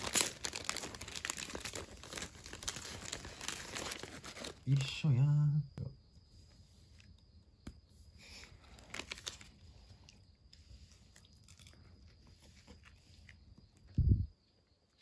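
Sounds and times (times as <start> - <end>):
wrapper crinkling: 0.0 - 4.9, 8.7 - 9.6
soft crackles: 0.0 - 5.0, 6.4 - 14.0.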